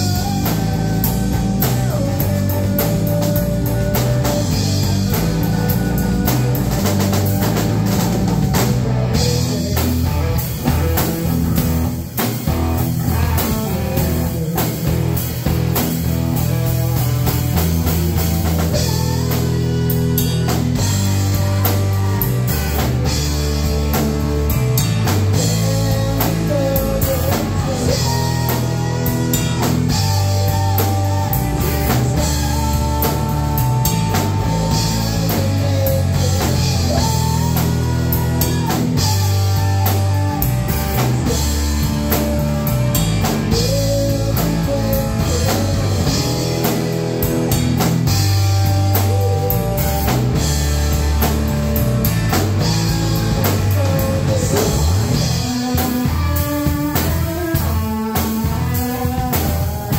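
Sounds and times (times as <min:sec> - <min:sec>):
man singing: 0:00.0 - 0:11.8, 0:12.6 - 0:51.0, 0:52.4 - 0:59.9
bass guitar: 0:00.0 - 0:59.9
distorted electric guitar: 0:00.0 - 0:59.9
drum kit beat: 0:00.0 - 0:59.9.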